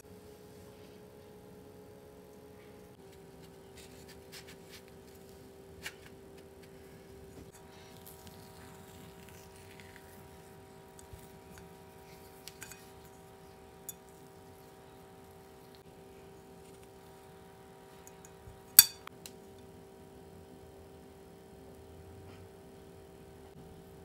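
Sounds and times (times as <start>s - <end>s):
steady low hum: 0.0s - 24.0s
metal scoop clicking on bowl: 18.1s - 19.1s.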